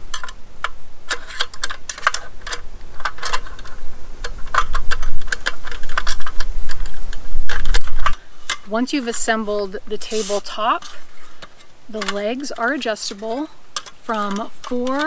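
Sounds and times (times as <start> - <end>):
aluminium slats clicking and rattling: 0.0 - 15.0.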